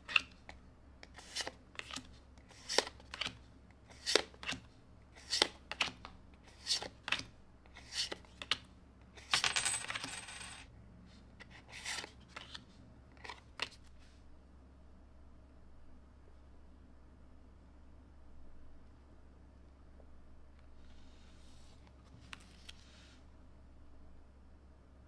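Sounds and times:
cards rustling: 0.0s - 8.6s, 11.4s - 12.6s.

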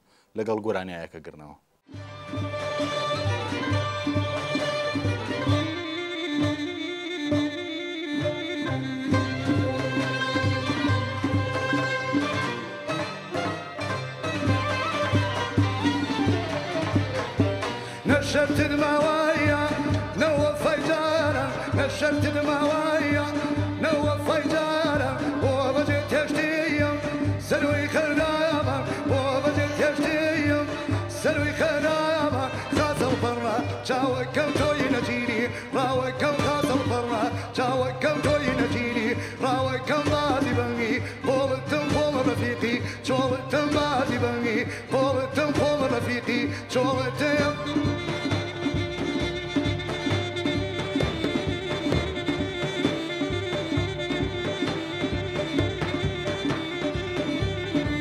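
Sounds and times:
hand drums: 1.9s - 58.0s
held instrumental melody line: 1.9s - 58.0s
man singing folk song: 5.6s - 9.9s, 17.8s - 49.3s
drums keeping steady beat: 46.8s - 58.0s.

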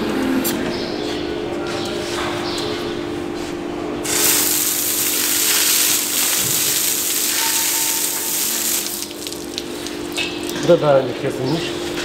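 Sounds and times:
low machine hum: 0.0s - 12.0s
hose water spray hissing: 4.1s - 10.2s.

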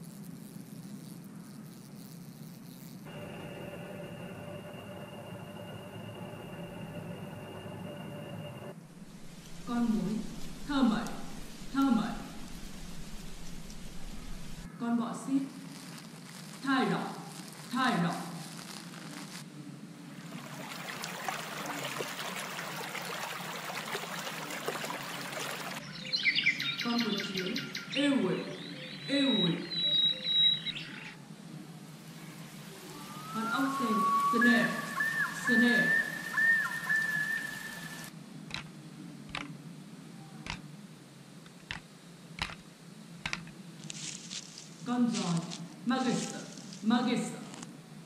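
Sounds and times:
faint low hum: 0.1s - 22.1s
shallow stream trickling: 20.0s - 25.8s, 33.8s - 38.1s
birds chirping: 23.1s - 31.2s, 32.2s - 38.1s
cockroach clicking: 42.4s - 42.6s.

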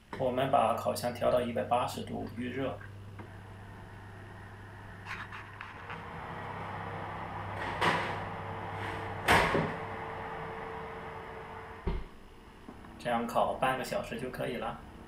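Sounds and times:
steady low hum: 0.0s - 15.0s
oven door opening: 5.8s - 12.1s
oven door shutting: 5.9s - 12.1s.

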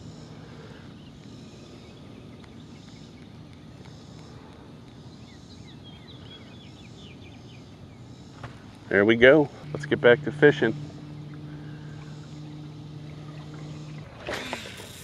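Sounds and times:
faint bird chirps: 0.0s - 14.0s
low background rumble: 0.0s - 15.0s.

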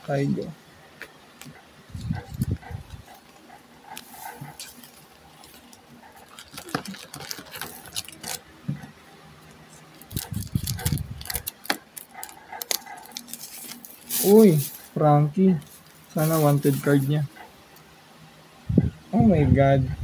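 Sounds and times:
cards and foil packs rustling: 1.4s - 8.9s, 9.9s - 15.0s, 15.6s - 17.3s.

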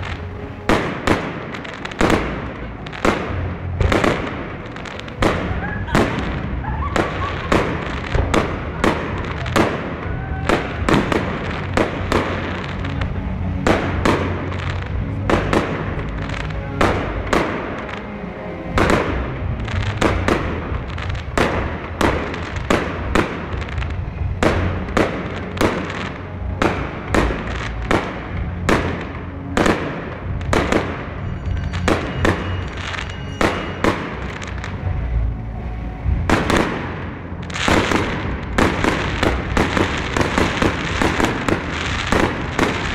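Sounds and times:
steady low rumble: 0.0s - 42.9s.

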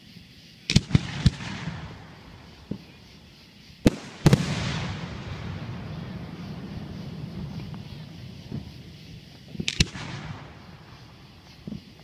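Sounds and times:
firework hiss and crackle: 0.0s - 12.0s
firework shells bursting: 3.8s - 12.0s.

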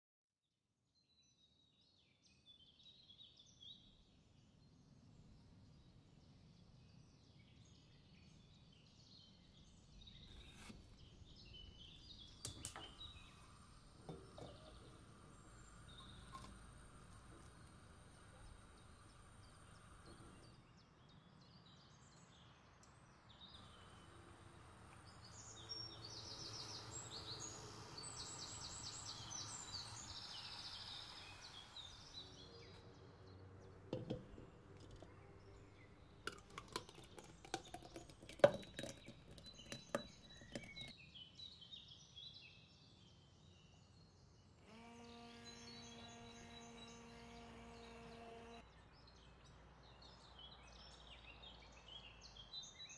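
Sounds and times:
faint bird chirping: 1.0s - 52.9s
immersion blender motor humming: 12.9s - 20.6s, 23.6s - 32.7s, 33.9s - 40.9s, 44.6s - 48.6s.

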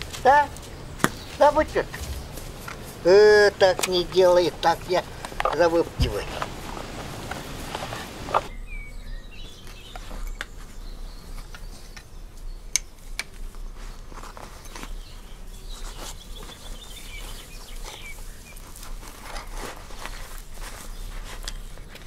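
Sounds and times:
footsteps and hands in grass: 0.0s - 8.6s, 13.0s - 22.0s
small songbirds chirping: 0.0s - 22.0s
bird trill: 8.0s - 12.9s, 14.4s - 18.7s.

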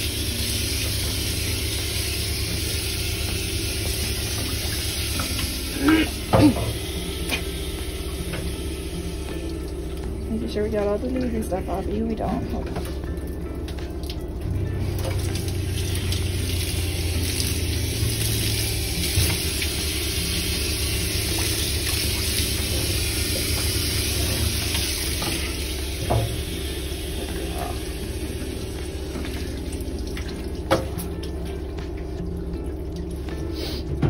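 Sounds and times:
water spraying on dog's coat: 0.0s - 9.6s, 14.9s - 32.2s
steady low hum: 0.0s - 34.0s.

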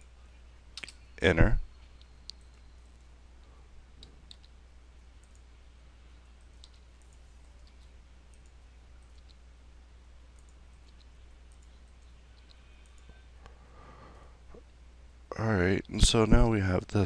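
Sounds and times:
steady low hum: 0.0s - 17.0s
mouse and keyboard clicks: 6.4s - 9.4s.

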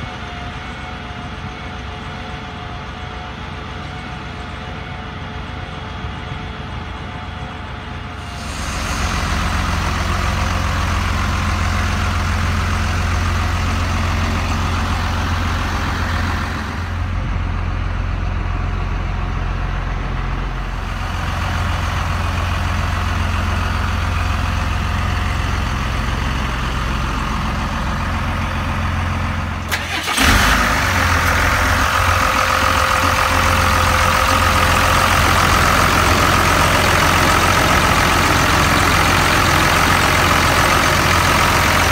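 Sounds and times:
steady whine: 0.0s - 30.4s
diesel truck engine idling: 0.0s - 41.9s.

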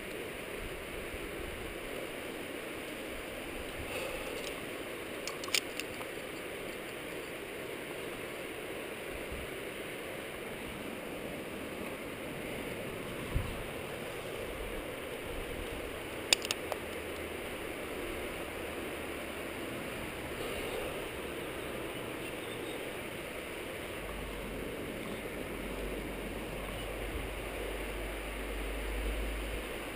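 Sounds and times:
wind rushing on camera: 0.0s - 29.9s
sharp clicks: 5.2s - 7.0s, 16.2s - 17.3s.

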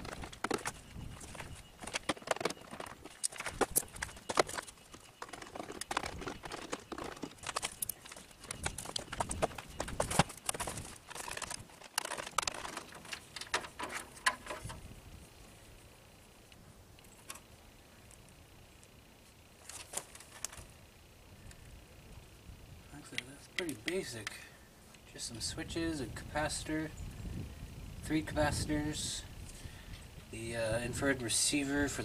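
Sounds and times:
plastic panel clattering: 0.0s - 14.8s.

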